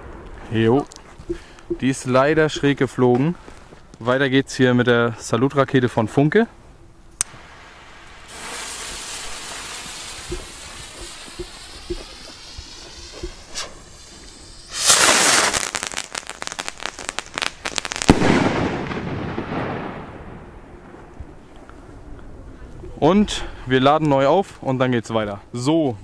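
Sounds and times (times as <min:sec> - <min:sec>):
rocket fuse hissing: 0:07.2 - 0:18.3
fast firework crackling: 0:07.2 - 0:20.1
loud firework bang: 0:17.8 - 0:20.5.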